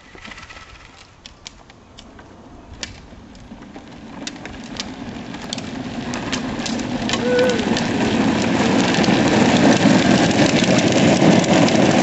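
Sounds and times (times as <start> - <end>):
wheels rolling on asphalt: 0.0 - 12.0
clicks and rattles: 2.8 - 12.0.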